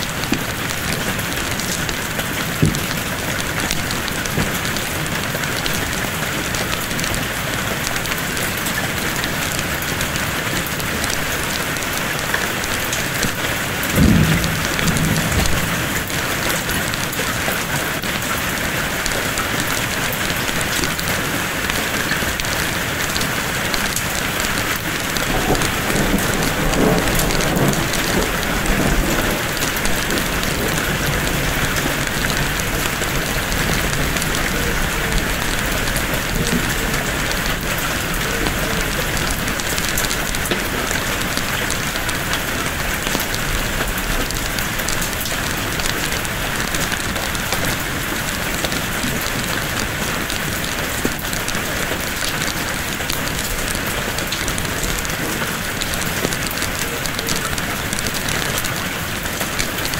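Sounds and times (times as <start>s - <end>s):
heavy rain: 0.0s - 59.9s
low rumble of thunder: 11.4s - 18.1s, 23.6s - 46.0s.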